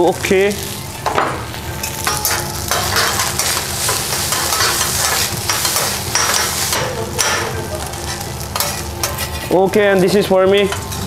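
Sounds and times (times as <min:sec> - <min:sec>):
rice and egg sizzling: 0:00.0 - 0:11.0
metal spatulas scraping griddle: 0:01.8 - 0:09.6.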